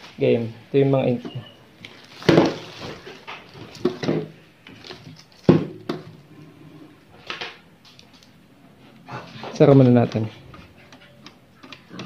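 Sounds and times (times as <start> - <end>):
plastic bags rustling: 1.8 - 5.9.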